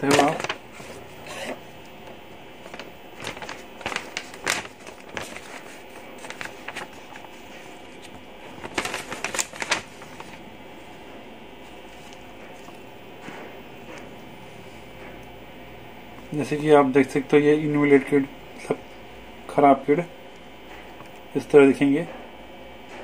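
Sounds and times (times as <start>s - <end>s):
paper rustling and crinkling: 0.0s - 14.9s.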